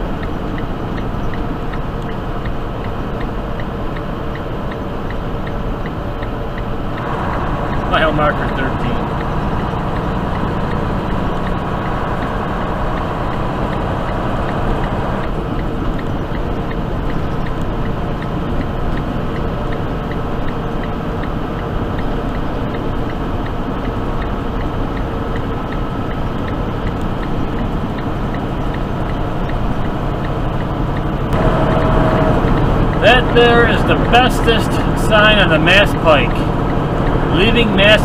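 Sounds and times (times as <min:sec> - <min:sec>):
faint light ticking: 0:00.0 - 0:12.3, 0:12.9 - 0:31.8
truck engine drone: 0:00.0 - 0:38.0
tyre noise on snowy road: 0:31.2 - 0:38.0.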